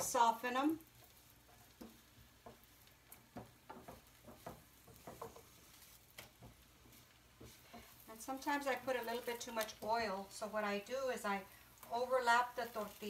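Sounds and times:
tortillas sizzling in oil: 0.0s - 13.0s
spatula tapping a pan: 0.8s - 9.9s.

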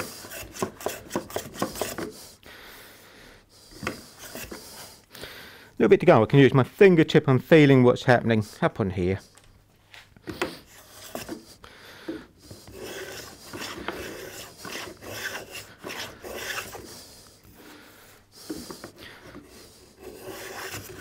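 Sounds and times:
hand plane scraping wood: 0.0s - 2.4s, 3.7s - 5.0s, 10.3s - 17.7s, 18.3s - 21.0s.

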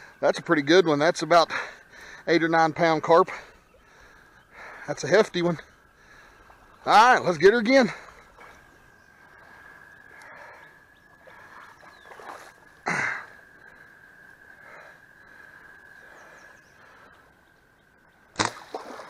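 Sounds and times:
quiet outdoor ambience: 0.0s - 19.0s
soft breathing: 3.3s - 5.0s, 5.6s - 6.8s, 7.9s - 17.4s.

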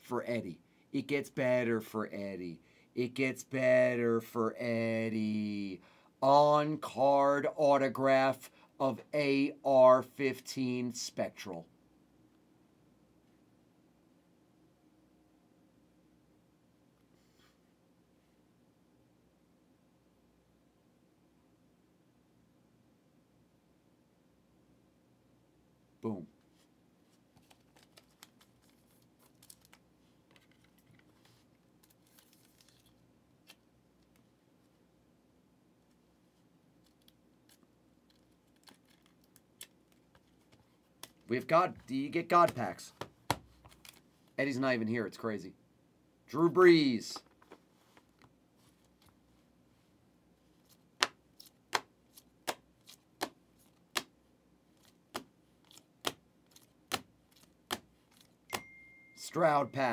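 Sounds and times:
trading cards rustling and clicking: 27.1s - 34.3s, 36.8s - 44.1s, 50.5s - 54.1s, 54.7s - 58.8s.

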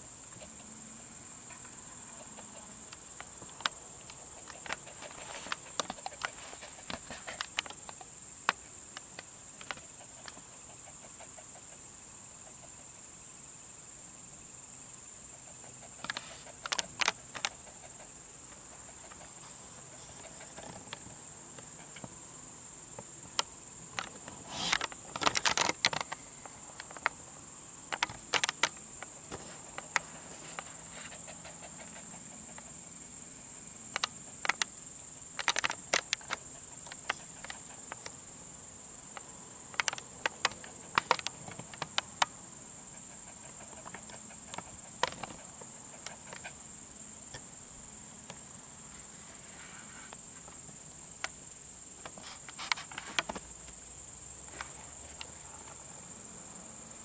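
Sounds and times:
crickets chirping: 0.0s - 57.0s
sharp clicks and taps: 27.9s - 31.2s, 33.9s - 34.7s, 35.4s - 38.2s, 39.2s - 42.4s.

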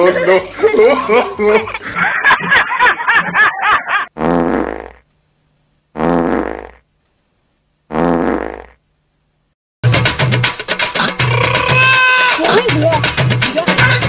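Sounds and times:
people laughing: 0.0s - 4.1s
comic fart sound effect: 4.1s - 5.0s, 6.0s - 6.8s, 7.9s - 8.8s, 10.9s - 12.5s.

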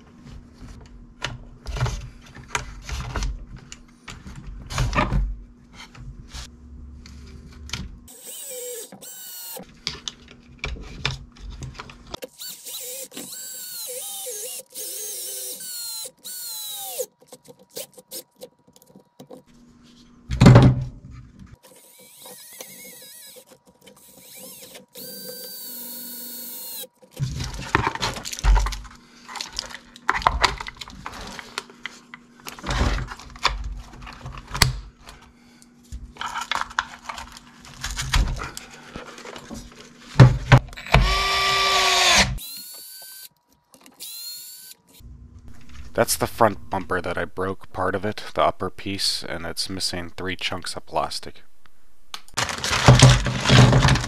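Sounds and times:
cordless screwdriver whirring: 8.1s - 9.6s, 12.2s - 18.4s, 21.6s - 26.9s, 40.8s - 45.0s
clicks and knocks of plastic parts: 52.3s - 54.0s.

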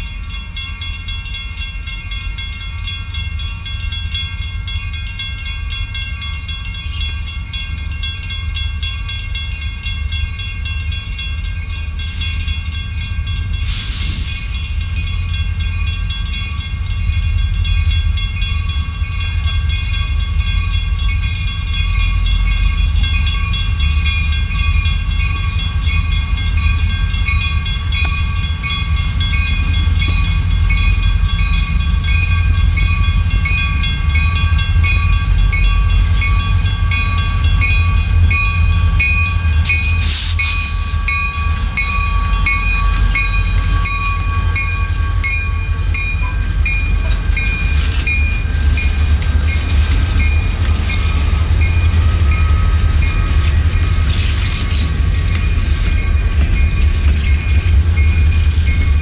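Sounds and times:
diesel locomotive engine rumble: 0.0s - 59.0s
high ringing tones: 14.4s - 59.0s.

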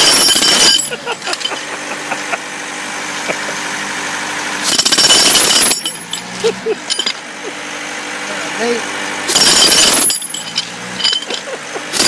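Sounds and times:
jackhammer breaking concrete: 0.0s - 1.7s, 4.6s - 7.2s, 9.3s - 12.0s
air compressor engine hum: 0.0s - 4.8s, 5.4s - 12.0s.

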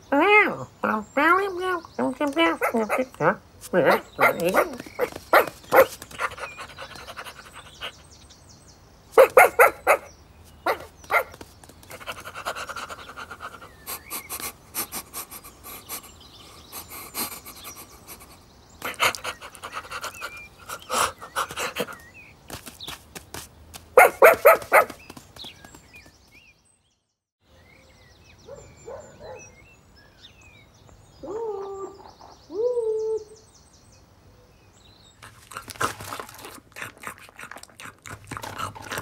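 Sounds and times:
cartoon puppy panting and sniffing: 3.9s - 8.2s, 10.7s - 22.1s, 35.2s - 39.0s.

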